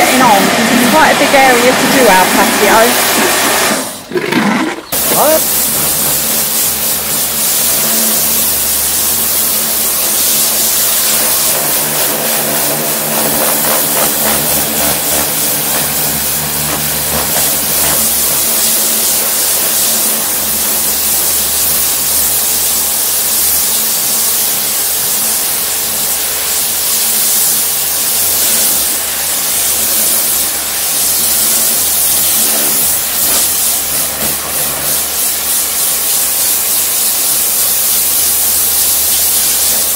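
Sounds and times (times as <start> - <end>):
pump motor humming: 0.0 - 39.9
water jet hissing on paving: 0.0 - 39.9.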